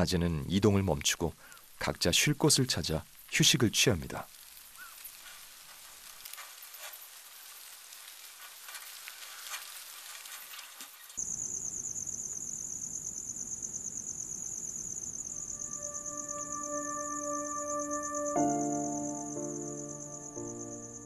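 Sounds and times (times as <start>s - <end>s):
insects chirring: 0.0s - 21.0s
crabs rustling in dry leaves: 4.2s - 11.4s.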